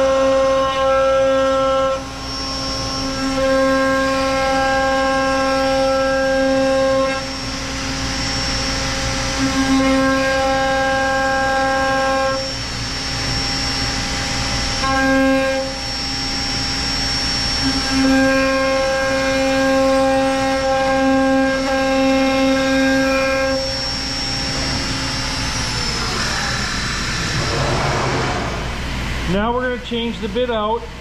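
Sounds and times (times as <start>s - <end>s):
router spindle whine: 0.0s - 29.4s
vacuum rush: 24.1s - 29.4s.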